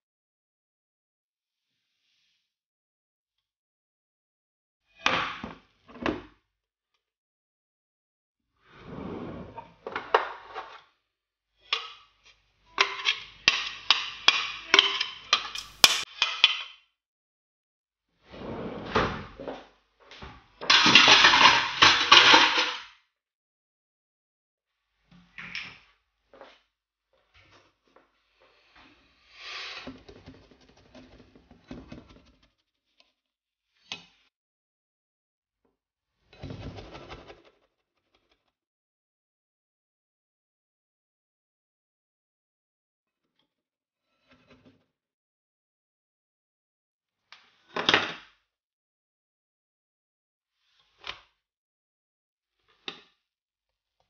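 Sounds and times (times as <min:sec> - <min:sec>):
sharp click: 0:15.6 - 0:16.0
spatula scraping frying pan: 0:15.6 - 0:16.0.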